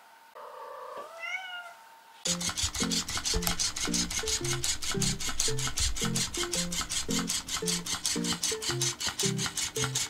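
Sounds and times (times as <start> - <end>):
cat meowing: 0.4 - 1.8
background music with steady beat: 2.3 - 10.0.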